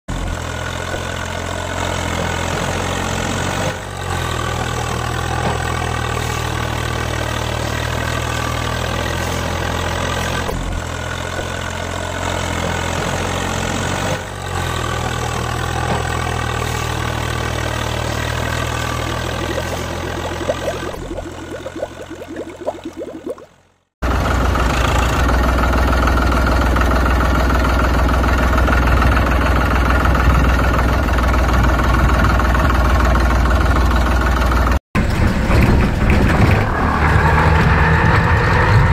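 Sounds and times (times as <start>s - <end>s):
tractor engine idling: 14.3s - 23.4s, 24.0s - 35.4s.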